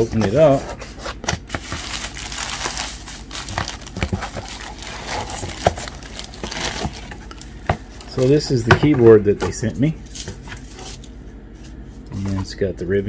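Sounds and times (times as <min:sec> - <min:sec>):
plastic crinkling and rustling: 0:01.4 - 0:08.6.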